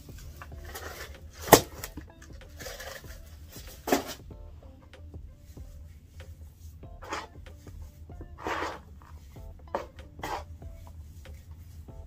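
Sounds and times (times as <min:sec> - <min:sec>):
faint background music: 0:00.0 - 0:12.0.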